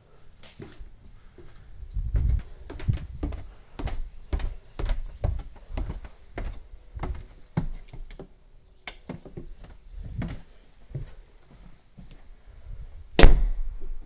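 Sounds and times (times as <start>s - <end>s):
footsteps on carpet: 1.4s - 8.3s, 9.1s - 12.2s.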